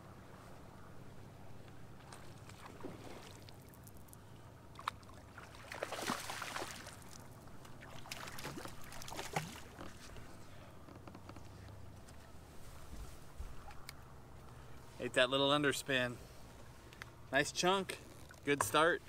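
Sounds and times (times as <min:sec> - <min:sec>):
water slapping boat hull: 0:02.0 - 0:04.0, 0:04.7 - 0:10.3
fish splashing at water surface: 0:04.8 - 0:09.8.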